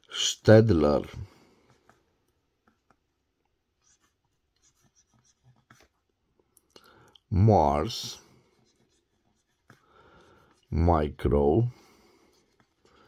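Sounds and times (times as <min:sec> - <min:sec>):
pencil lead scratching paper: 0:01.6 - 0:06.2, 0:07.8 - 0:10.7, 0:12.2 - 0:13.0.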